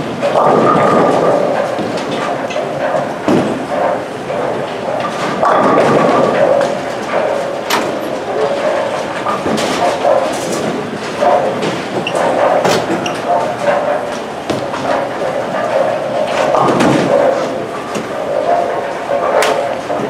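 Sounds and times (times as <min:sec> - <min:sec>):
bowling balls rolling: 0:00.0 - 0:20.0
bowling pins clattering: 0:00.0 - 0:20.0
sharp clack: 0:19.2 - 0:20.0.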